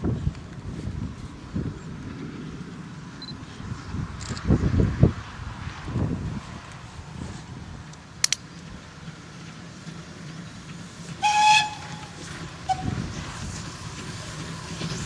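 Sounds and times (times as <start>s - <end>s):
low rumble of train: 0.0s - 15.0s
steam locomotive whistle: 11.2s - 13.2s.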